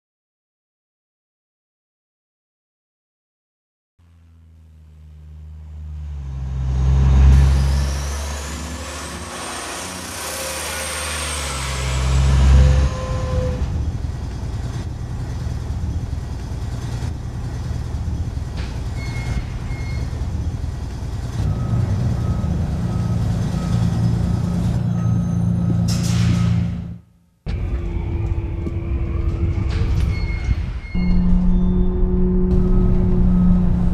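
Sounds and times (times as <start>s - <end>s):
high whine: 4.0s - 14.0s, 27.5s - 33.9s
bus engine rumble: 4.0s - 33.9s
short beeps: 30.1s - 33.9s.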